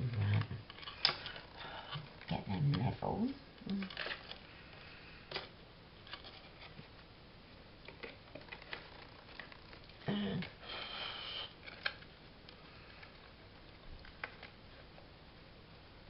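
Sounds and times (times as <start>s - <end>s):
person humming: 10.0s - 10.6s
person sniffing: 10.1s - 11.6s.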